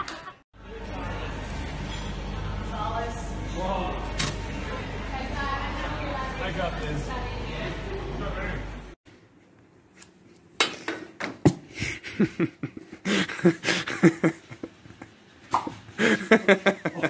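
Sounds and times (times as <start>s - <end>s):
people laughing: 0.0s - 0.4s, 11.7s - 15.1s, 16.0s - 17.0s.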